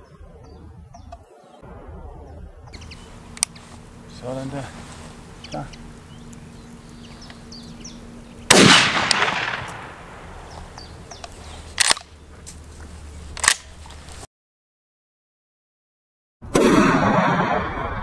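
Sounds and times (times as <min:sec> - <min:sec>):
shotgun shot echoing: 0:08.5 - 0:10.5.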